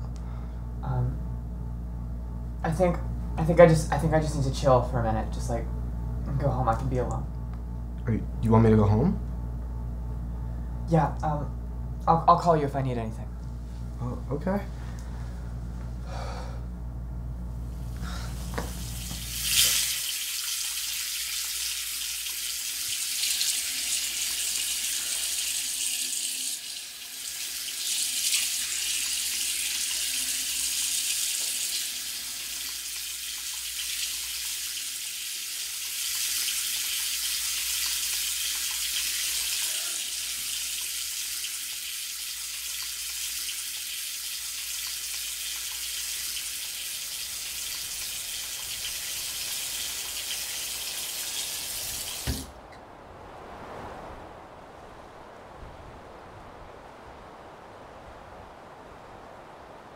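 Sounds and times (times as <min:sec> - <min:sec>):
low hum: 0:00.0 - 0:19.8
water running into a sink: 0:18.3 - 0:52.5.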